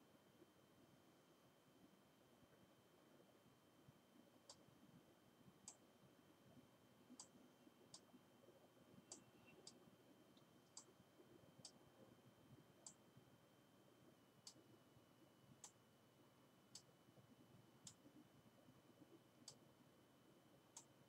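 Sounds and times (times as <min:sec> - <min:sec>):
faint high whine: 0:00.0 - 0:21.0
computer mouse clicks: 0:07.1 - 0:08.2, 0:09.1 - 0:09.8, 0:10.4 - 0:11.0, 0:11.6 - 0:11.8, 0:14.4 - 0:14.6.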